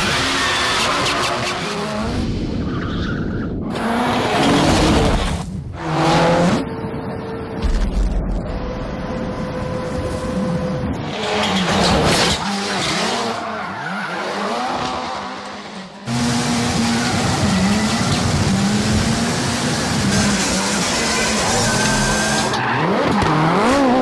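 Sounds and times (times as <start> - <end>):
tyres skidding and squealing: 0.0 - 7.2, 9.0 - 24.0
rally car engine revving: 3.6 - 6.9, 9.3 - 24.0.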